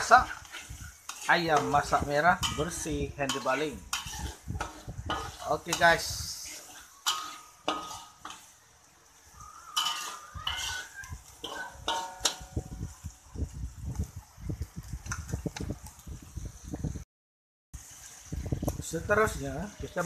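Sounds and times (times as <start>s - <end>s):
metal spatula scraping a wok: 0.0s - 13.0s.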